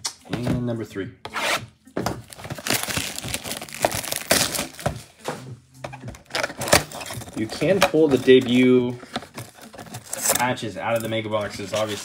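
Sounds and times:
packaging crinkling and tearing: 2.2 - 5.1, 6.2 - 10.5.

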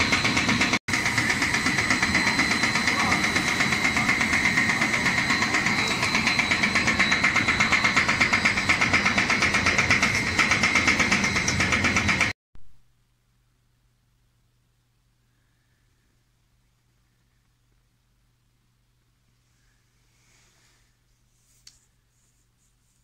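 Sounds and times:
high machine whine: 0.0 - 12.4
machinery pulsing: 0.0 - 12.4.

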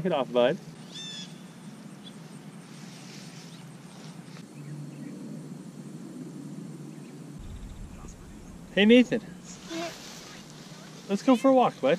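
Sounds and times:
low outdoor rumble: 7.4 - 11.1.

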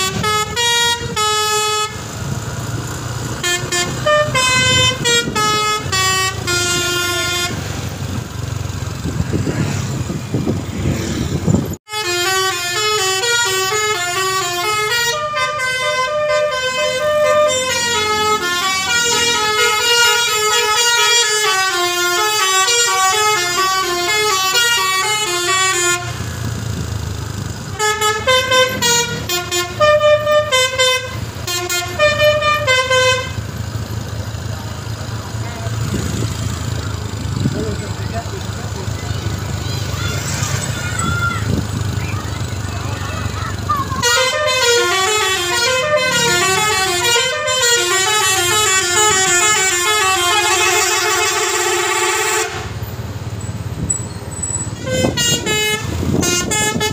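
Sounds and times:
musical air horn melody: 0.0 - 2.1, 3.4 - 7.7, 11.9 - 26.2, 27.8 - 33.4, 44.0 - 52.8, 54.8 - 56.9
bus engine: 0.0 - 56.9
road noise: 0.0 - 56.9.

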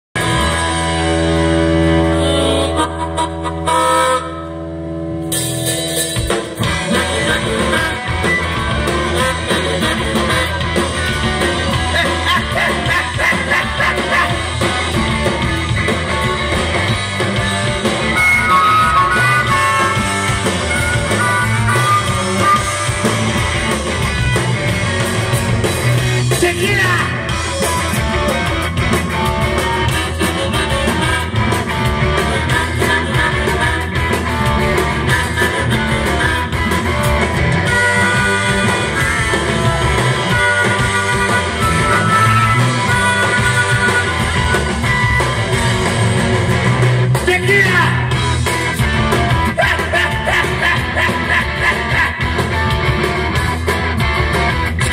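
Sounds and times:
drum kit: 0.2 - 54.9
electric guitars: 0.2 - 54.9
person singing: 29.6 - 34.3, 49.5 - 52.4.

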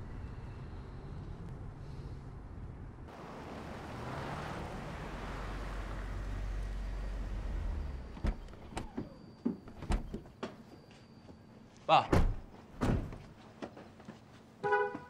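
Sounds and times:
car pulling up: 3.1 - 10.8.

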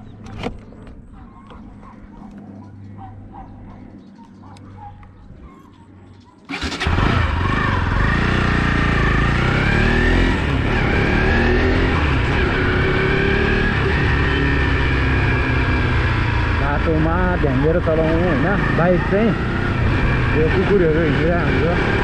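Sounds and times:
motorcycle engine: 6.5 - 22.0.

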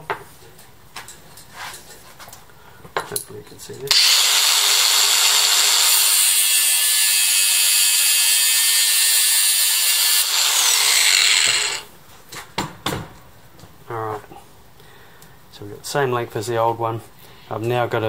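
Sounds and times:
angle grinder running: 3.9 - 11.9
cut-off wheel grinding wire: 3.9 - 11.9.

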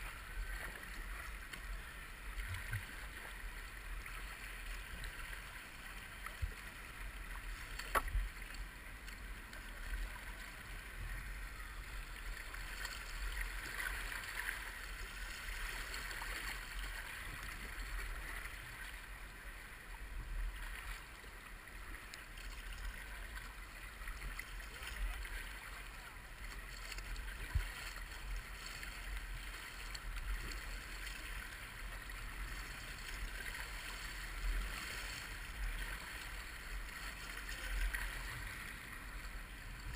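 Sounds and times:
river water rushing and splashing: 0.0 - 39.9.

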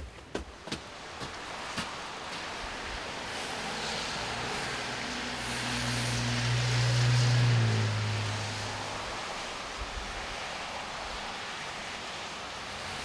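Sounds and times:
vehicle passing by: 3.3 - 10.5.

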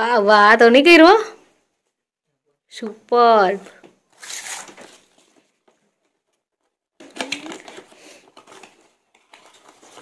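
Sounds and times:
cardboard packaging crinkling: 4.2 - 5.4, 7.0 - 10.0.

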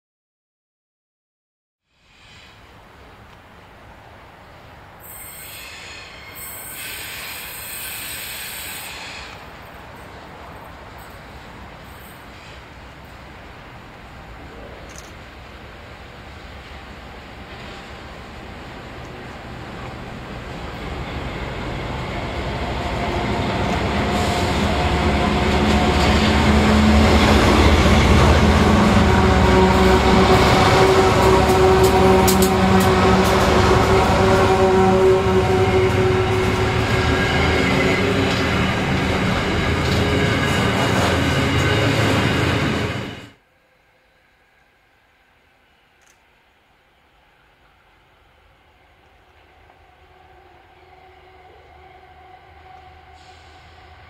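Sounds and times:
train wheels hissing on rails: 1.9 - 3.2, 4.8 - 43.4, 49.3 - 54.0
low train rumble: 2.0 - 54.0
diesel locomotive engines humming: 2.8 - 43.4, 44.0 - 54.0.

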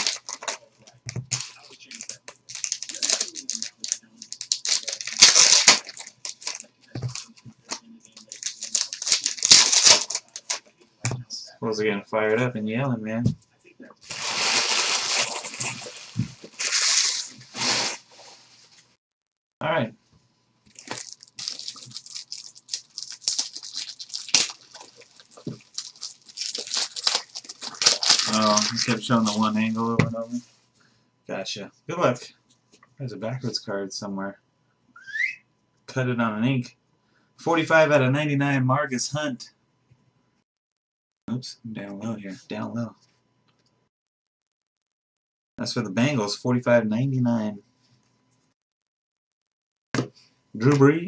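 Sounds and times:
card wrappers tearing and crinkling: 0.0 - 10.7, 14.0 - 18.0, 20.7 - 29.8.

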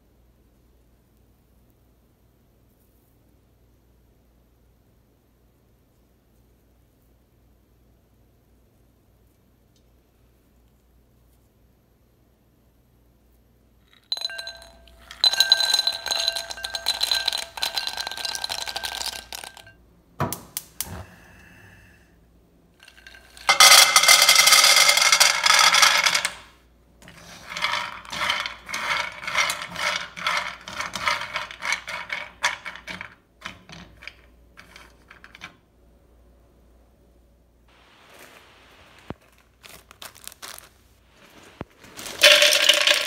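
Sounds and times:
cashews clattering into glass bowl: 13.9 - 19.7, 22.8 - 26.4, 42.0 - 43.0
cashews rattling in pan: 14.0 - 19.7, 22.8 - 26.4, 27.2 - 33.0, 41.8 - 43.0
cashews poured into pan: 41.2 - 43.0.

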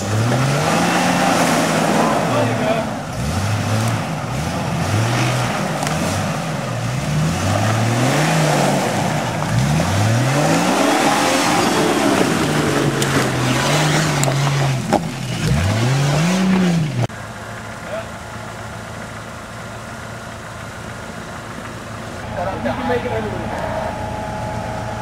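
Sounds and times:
engine revving up and down: 0.0 - 17.1.

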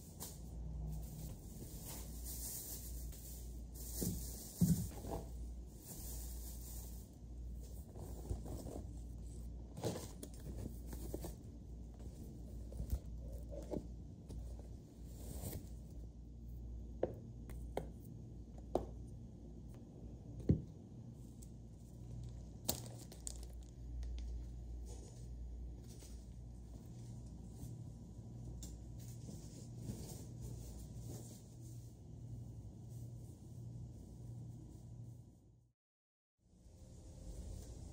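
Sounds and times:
bag and packaging rustling: 22.1 - 23.8.

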